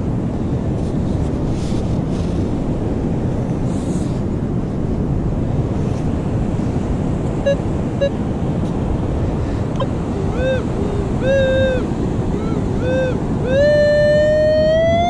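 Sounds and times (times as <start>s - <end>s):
wind: 0.0s - 15.0s
metal detector beeping tones: 7.4s - 8.2s, 10.2s - 11.8s, 12.4s - 15.0s.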